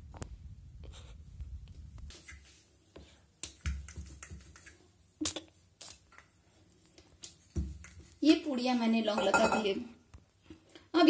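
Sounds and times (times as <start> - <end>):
hands rubbing dough: 0.8 - 9.2.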